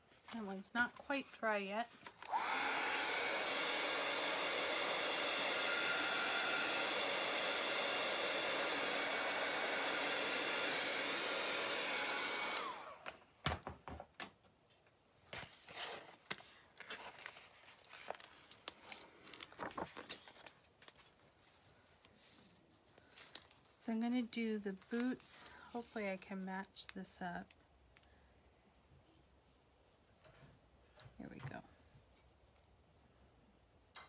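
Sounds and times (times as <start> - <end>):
hot-air dryer blowing: 2.2 - 13.2.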